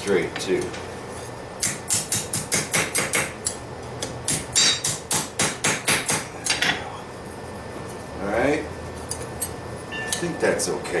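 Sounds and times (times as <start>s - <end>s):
hammer striking steel on anvil: 4.3s - 6.8s.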